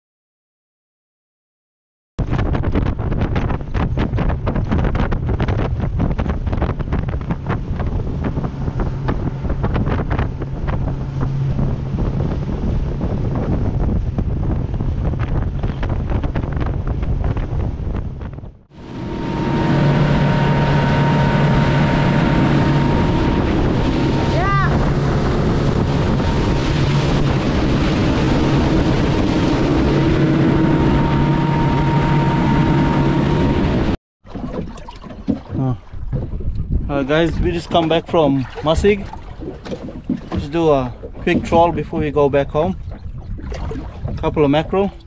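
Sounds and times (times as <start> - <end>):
wind buffeting microphone: 2.2 - 34.0, 34.6 - 45.0
motorboat engine hum: 2.2 - 45.0
spray slapping hull: 34.2 - 45.0.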